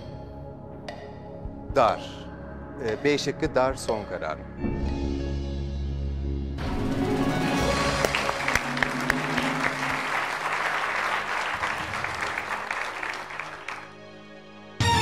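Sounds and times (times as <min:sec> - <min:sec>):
studio audience applauding: 0:07.6 - 0:14.0.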